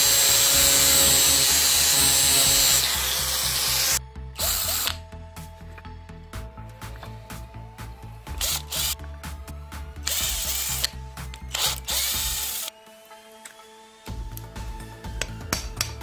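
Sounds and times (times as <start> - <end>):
drill-driver turning a screw: 0.0 - 5.0, 8.4 - 9.0, 10.0 - 12.7.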